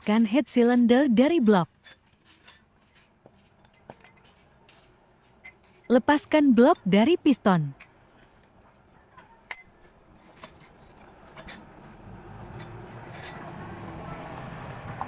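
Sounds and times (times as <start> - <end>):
light metallic clinks and taps: 0.7 - 5.9, 7.7 - 11.7.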